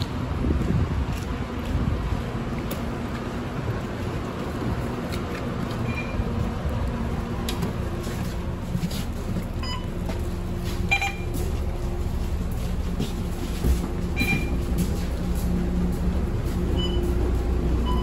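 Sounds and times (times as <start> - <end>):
bus engine humming: 0.0 - 18.0
short electronic beeps: 5.8 - 6.3, 9.6 - 9.9, 10.9 - 11.4, 14.2 - 14.6, 16.8 - 17.2.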